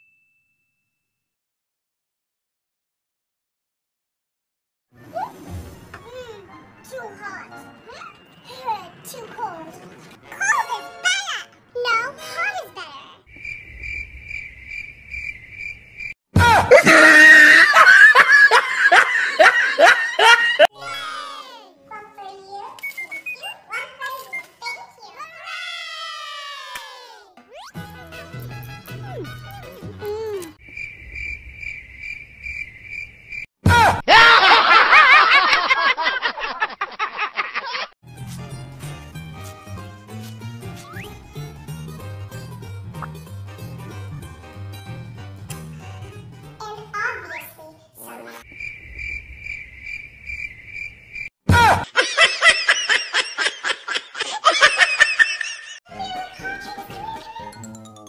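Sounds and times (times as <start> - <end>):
crickets chirping: 13.3 - 16.2, 30.6 - 33.5, 48.4 - 51.3
high-pitched laughing: 16.4 - 21.1, 51.5 - 55.8.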